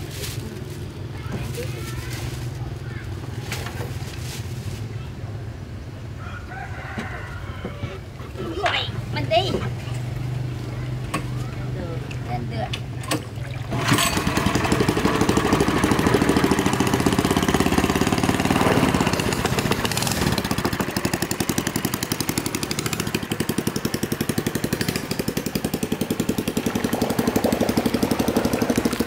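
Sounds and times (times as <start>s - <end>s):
small boat engine running: 9.9s - 29.0s.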